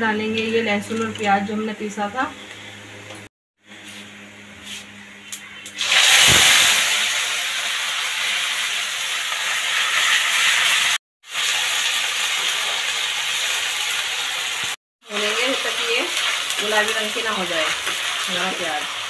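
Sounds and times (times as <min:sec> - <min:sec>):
paste sizzling in hot oil: 0:05.8 - 0:19.0.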